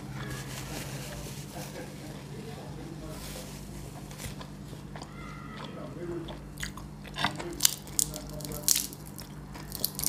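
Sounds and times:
low steady hum: 0.0 - 10.0
soft chewing: 0.0 - 10.0
roast chicken tearing crackles: 6.8 - 10.0.

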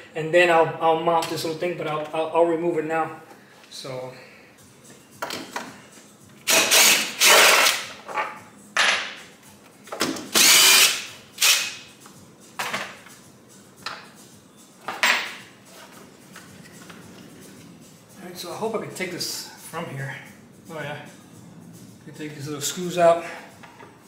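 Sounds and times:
cordless drill running: 6.5 - 7.8, 10.4 - 11.7.

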